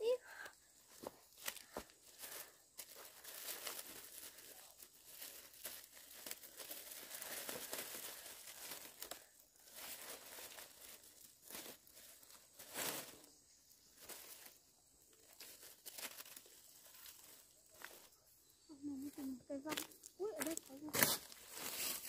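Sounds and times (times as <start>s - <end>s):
plastic bag crinkling: 2.1s - 13.3s.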